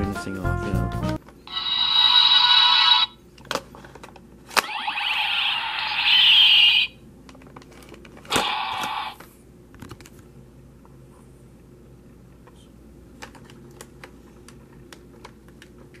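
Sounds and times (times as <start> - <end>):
electronic toy sound effect: 1.5 - 3.2, 4.6 - 7.0, 8.3 - 9.2.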